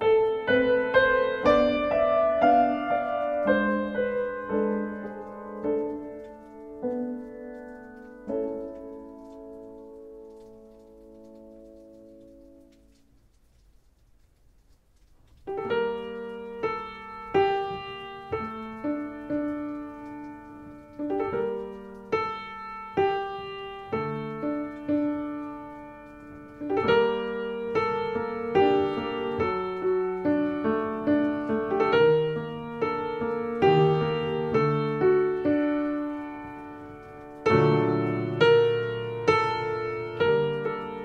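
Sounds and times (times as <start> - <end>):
solo piano: 0.0 - 41.0.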